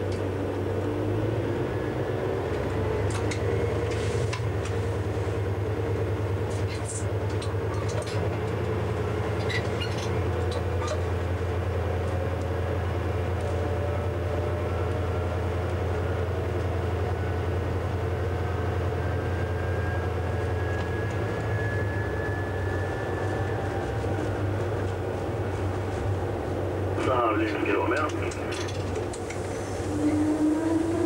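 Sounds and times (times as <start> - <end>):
locomotive diesel engine drone: 0.0 - 31.0.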